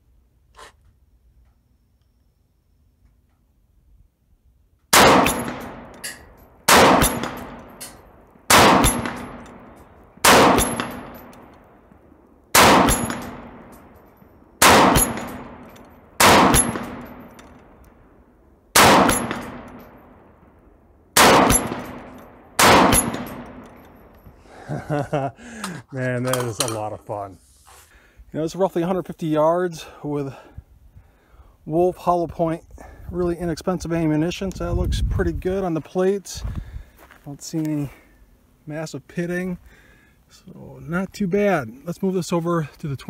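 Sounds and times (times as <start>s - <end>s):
rifle shots with echo: 4.9s - 11.8s, 12.5s - 17.8s, 18.7s - 20.6s, 21.2s - 24.1s.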